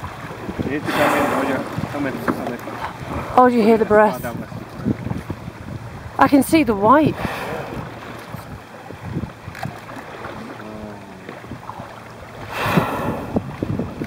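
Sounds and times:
water lapping: 0:00.0 - 0:14.0
wind at sea: 0:00.0 - 0:14.0
whale exhaling: 0:00.8 - 0:02.0, 0:07.1 - 0:08.5, 0:10.2 - 0:14.0.

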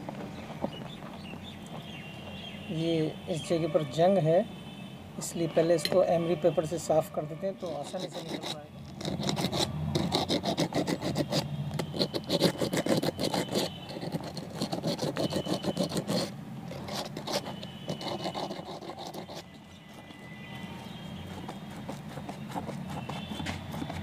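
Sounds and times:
sandpaper rasping on metal: 0:07.6 - 0:24.0.

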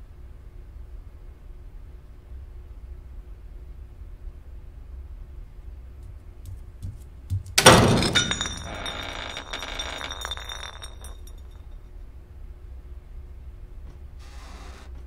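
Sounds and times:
bottle clattering on tile floor: 0:06.5 - 0:11.6
bottle rolling and clinking: 0:06.8 - 0:11.7.

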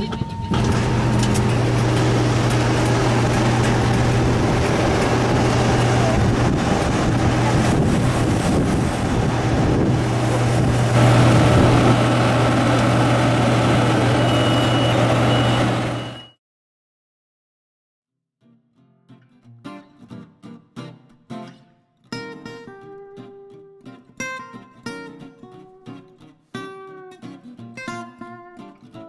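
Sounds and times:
machinery drone: 0:00.1 - 0:16.3
high whistle: 0:14.1 - 0:16.4.

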